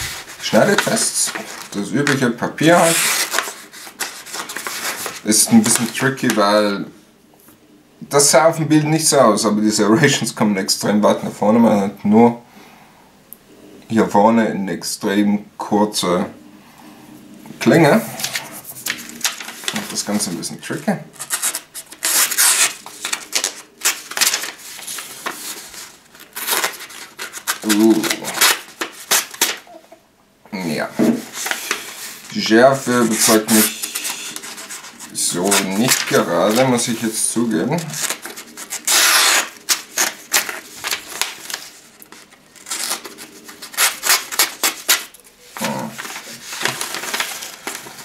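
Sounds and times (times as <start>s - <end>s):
knife tearing through paper: 2.8s - 6.1s, 21.2s - 29.6s, 37.9s - 48.0s
knife rasping through paper: 33.0s - 36.6s, 37.9s - 48.0s.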